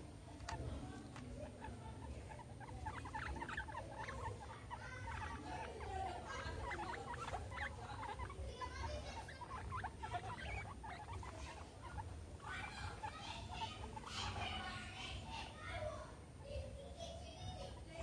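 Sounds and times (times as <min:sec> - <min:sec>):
guinea pigs squeaking: 0:00.0 - 0:15.6, 0:16.3 - 0:18.0.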